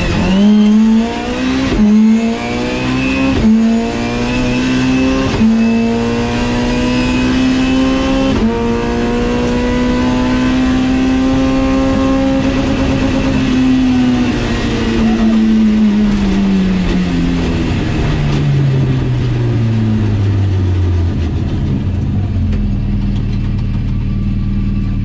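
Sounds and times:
car engine slowing down: 0:07.8 - 0:25.0.

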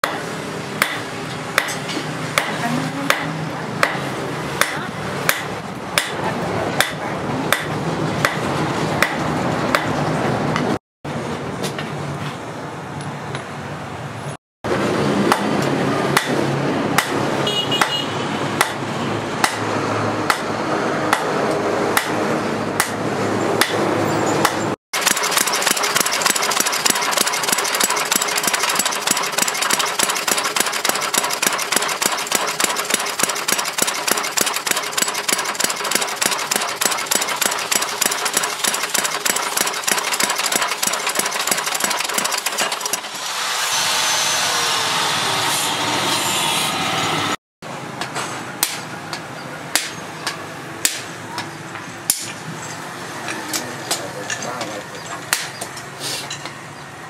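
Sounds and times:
hammer striking metal on anvil: 0:00.0 - 0:06.2, 0:06.8 - 0:09.9
mechanical hum: 0:19.0 - 0:55.9.

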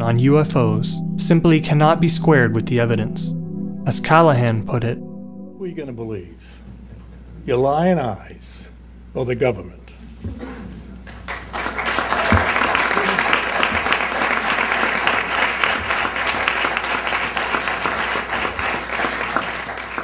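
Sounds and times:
audience applause: 0:11.0 - 0:20.0.

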